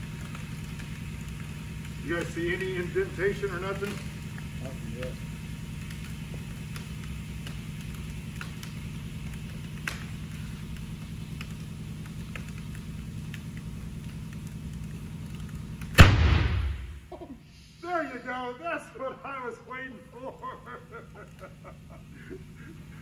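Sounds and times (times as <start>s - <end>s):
low hum: 2.9s - 17.8s
steel drum imploding bang: 16.0s - 17.1s.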